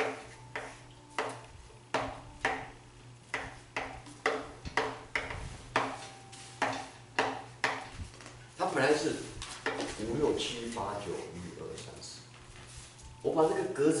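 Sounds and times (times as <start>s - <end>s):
chalk tapping on blackboard: 0.0s - 8.0s, 9.4s - 10.0s.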